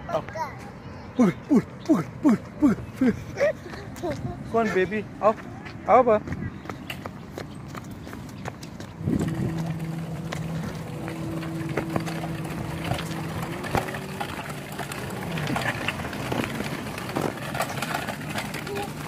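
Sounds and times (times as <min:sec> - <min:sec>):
steady low hum: 0:01.1 - 0:18.8
plastic wheels rolling on paving: 0:06.9 - 0:19.0
clicks and rattles: 0:09.0 - 0:19.0.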